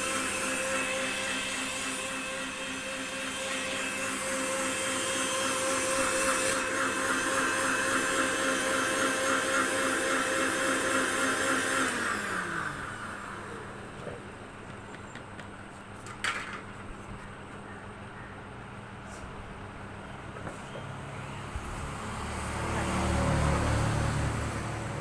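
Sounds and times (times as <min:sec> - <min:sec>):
motor spinning down: 0:00.0 - 0:14.1
mixer-grinder whining: 0:00.0 - 0:14.5, 0:21.4 - 0:25.0.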